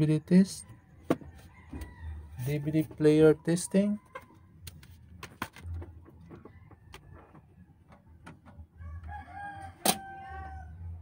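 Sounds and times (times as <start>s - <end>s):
rooster crowing: 1.4s - 2.6s, 8.8s - 11.0s.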